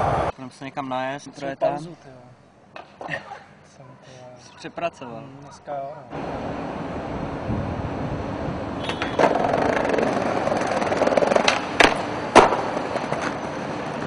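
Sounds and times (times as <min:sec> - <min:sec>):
skateboard wheels rolling on concrete: 0:06.1 - 0:14.0
skateboard clacking on ground: 0:08.8 - 0:14.0.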